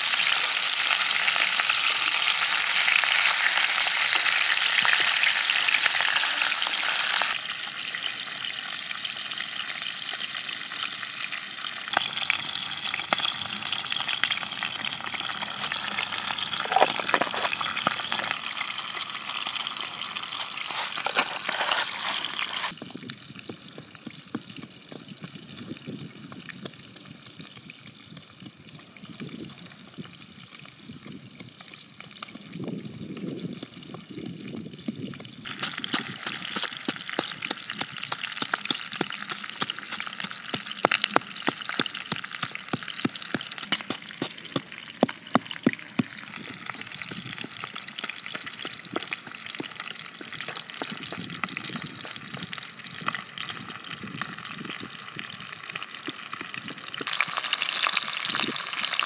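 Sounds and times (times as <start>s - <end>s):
fish sizzling in hot oil: 0.0s - 59.0s
oil crackling: 0.0s - 59.0s
pestle pounding in a mortar: 22.8s - 30.0s, 35.5s - 52.6s.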